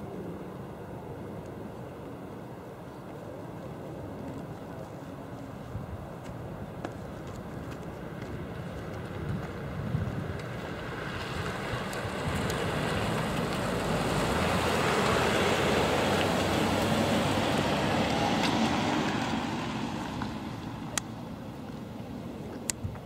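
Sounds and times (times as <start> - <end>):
vehicles driving past: 7.7 - 23.0.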